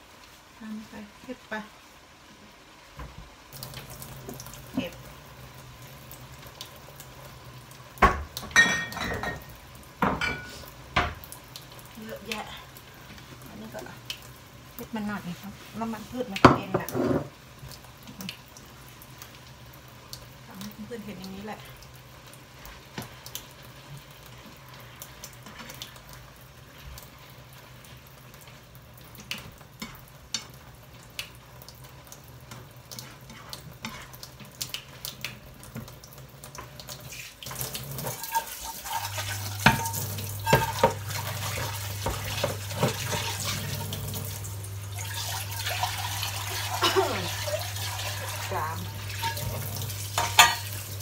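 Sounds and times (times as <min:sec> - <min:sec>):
spatula scraping frying meat: 0:23.8 - 0:28.0, 0:32.4 - 0:35.0, 0:36.6 - 0:44.0, 0:45.1 - 0:51.0.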